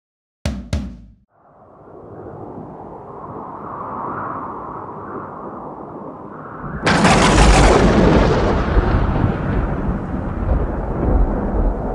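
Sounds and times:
loud crash with deep rumbling: 6.9 - 11.6.

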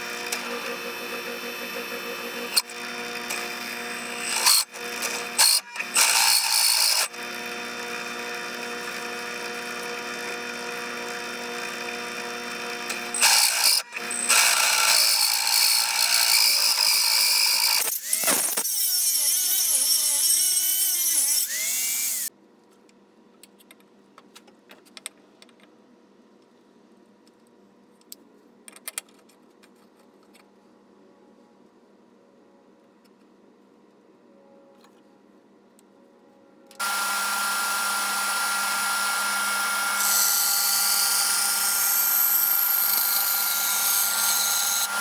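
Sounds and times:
drill press cutting metal: 0.0 - 22.3, 36.8 - 45.0.

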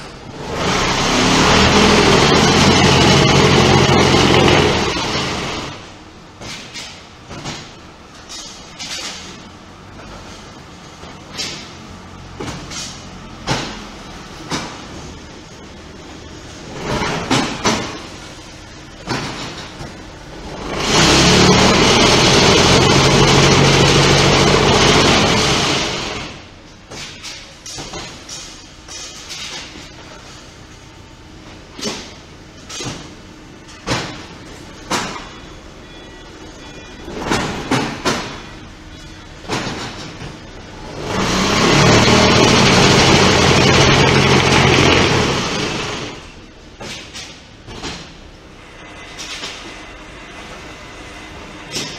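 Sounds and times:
block-making machine droning: 0.0 - 8.2, 9.4 - 30.4, 31.1 - 51.9.

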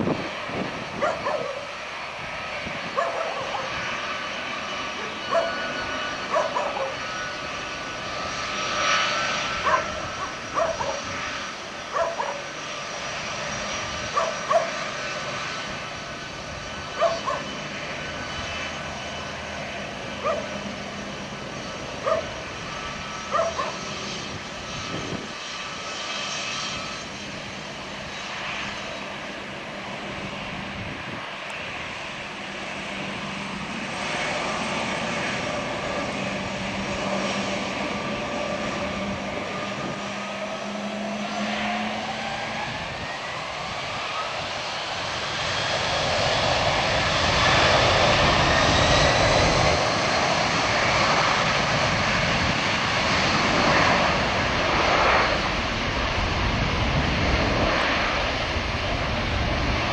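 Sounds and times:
jet engines whining: 0.0 - 59.9
dog barking: 1.0 - 1.7, 3.0 - 3.7, 5.3 - 5.6, 6.3 - 7.0, 9.6 - 11.0, 11.9 - 12.5, 14.2 - 14.8, 17.0 - 17.5, 20.2 - 20.5, 22.0 - 22.3, 23.3 - 23.8.

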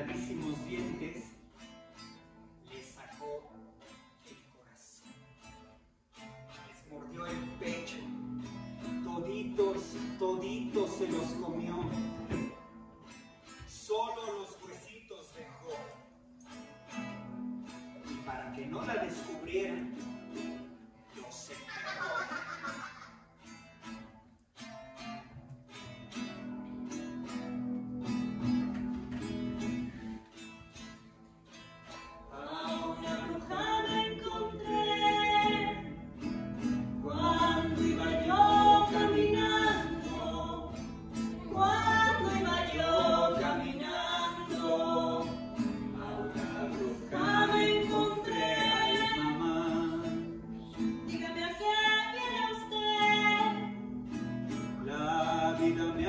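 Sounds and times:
acoustic guitar playing: 0.0 - 56.0
person singing: 21.1 - 23.2, 32.3 - 36.0, 37.0 - 53.8.

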